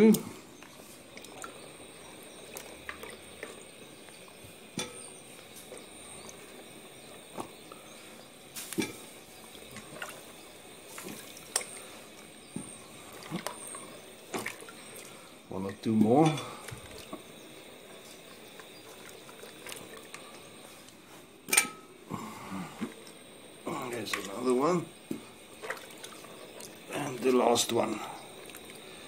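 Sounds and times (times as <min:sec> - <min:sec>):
small splashes and drips: 0:00.0 - 0:21.0, 0:22.8 - 0:29.0
hand swishing beans in water: 0:07.2 - 0:17.3.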